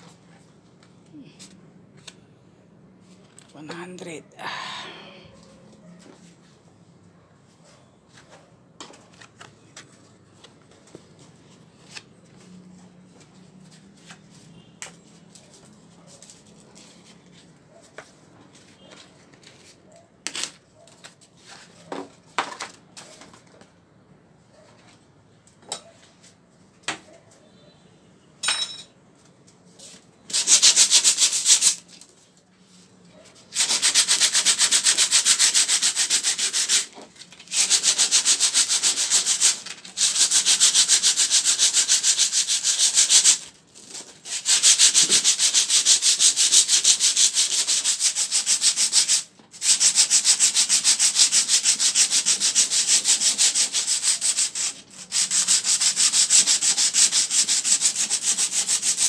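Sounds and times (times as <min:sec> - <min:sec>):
sandpaper scrubbing painted metal: 0:30.3 - 0:31.9, 0:33.4 - 0:59.0.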